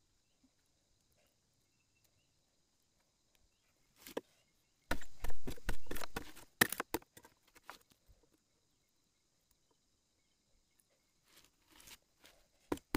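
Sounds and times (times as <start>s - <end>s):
blade chopping bamboo: 4.9s - 7.2s.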